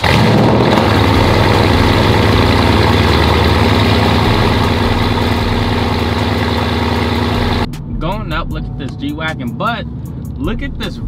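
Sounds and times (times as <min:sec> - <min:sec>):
car engine idling loudly: 0:00.0 - 0:07.7.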